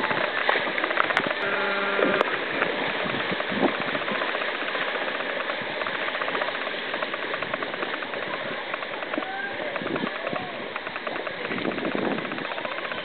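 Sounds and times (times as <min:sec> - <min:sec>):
short pitched tone: 0:01.4 - 0:02.4.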